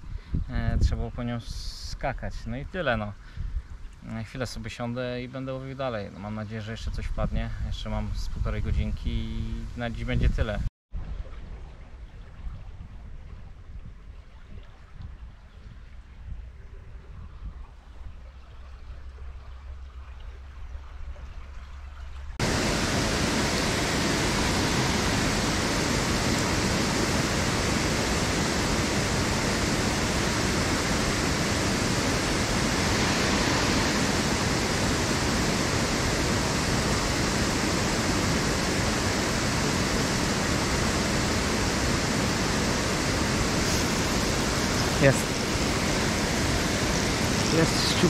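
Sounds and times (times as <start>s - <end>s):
water rushing over a weir: 21.6s - 48.0s.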